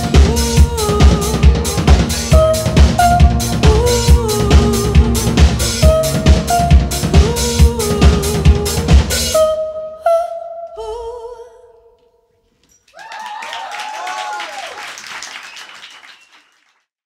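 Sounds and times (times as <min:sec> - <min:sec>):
rock band playing: 0:00.0 - 0:09.4
audience applauding and cheering: 0:12.9 - 0:16.8.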